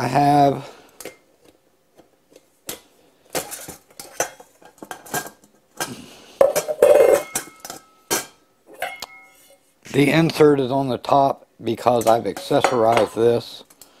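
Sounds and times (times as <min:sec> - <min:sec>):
metal pot clanking and scraping: 0:03.3 - 0:09.8, 0:11.9 - 0:13.4.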